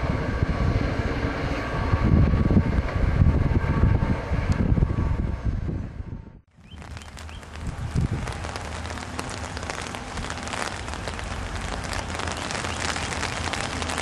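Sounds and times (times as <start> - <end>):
rain drops tapping: 6.7 - 14.0.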